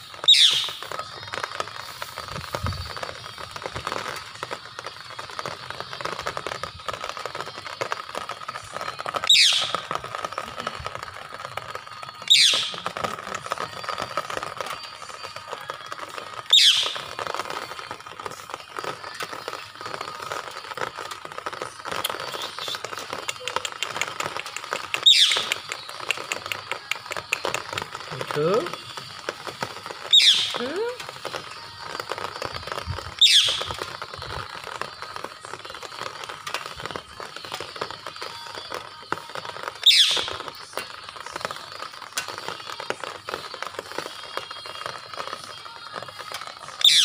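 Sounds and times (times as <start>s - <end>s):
steady crackling background: 0.0s - 47.0s
parakeet screeching: 0.3s - 0.7s, 9.3s - 9.7s, 12.3s - 12.7s, 16.5s - 16.9s, 25.1s - 25.4s, 30.1s - 30.6s, 33.2s - 33.6s, 39.9s - 40.2s.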